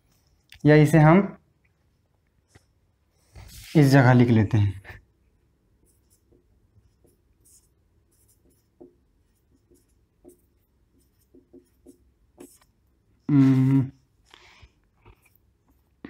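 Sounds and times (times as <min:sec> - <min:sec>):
marker pen writing on whiteboard: 0:05.7 - 0:13.3, 0:14.0 - 0:16.0.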